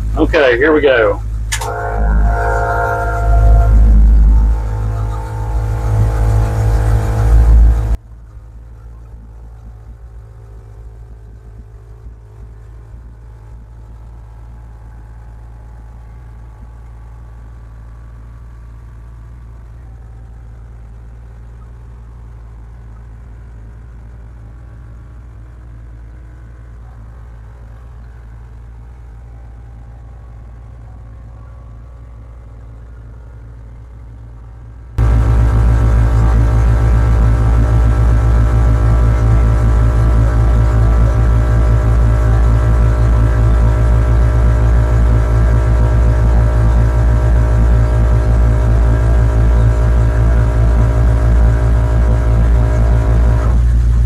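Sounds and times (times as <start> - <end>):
truck engine idling: 0.0 - 54.0
air compressor running: 1.2 - 8.0, 35.0 - 54.0.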